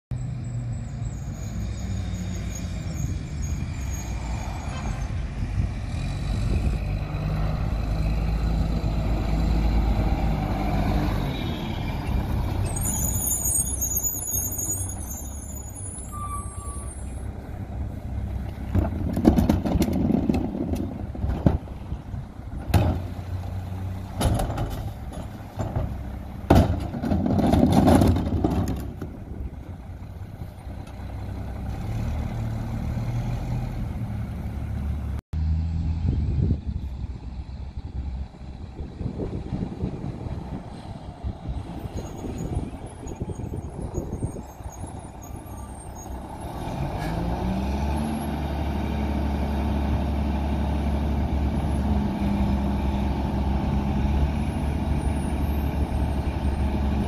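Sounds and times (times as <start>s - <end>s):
high brake squeal: 0.1s - 5.2s, 11.4s - 17.3s, 41.8s - 46.2s, 55.0s - 56.6s
garbage truck diesel engine: 0.1s - 57.0s
trash cart knocks and thuds: 18.7s - 21.8s, 22.6s - 23.1s, 24.1s - 29.2s.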